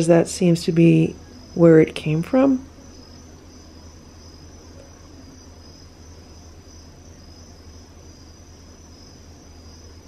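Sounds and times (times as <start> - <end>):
crickets chirring: 0.0 - 10.0
steady low hum: 0.0 - 10.0.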